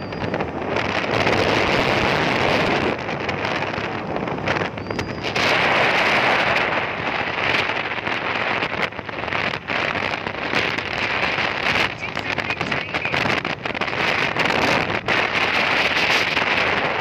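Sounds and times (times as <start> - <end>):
road and traffic noise: 0.0 - 17.0
wind buffeting microphone: 0.0 - 17.0.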